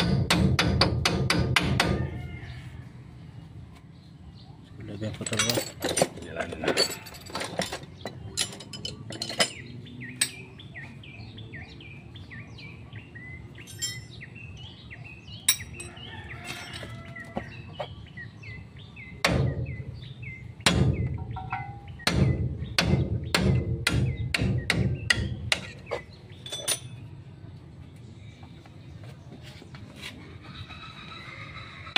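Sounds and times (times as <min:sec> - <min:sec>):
bird chirping: 0:07.8 - 0:27.1.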